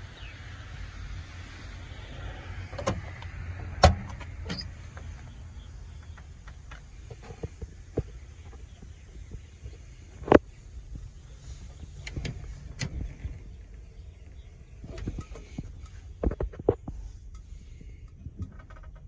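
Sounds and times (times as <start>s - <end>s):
steady low rumble: 0.0s - 19.0s.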